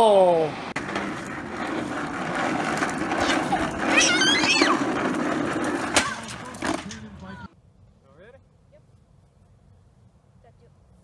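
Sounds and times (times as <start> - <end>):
plastic wheels rolling on concrete: 0.6 - 7.5
high squeal: 3.2 - 4.9.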